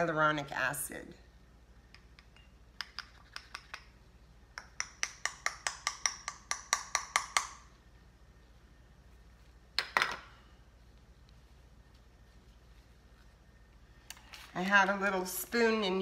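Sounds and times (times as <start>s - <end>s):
spatula tapping glass jar: 4.5s - 7.6s.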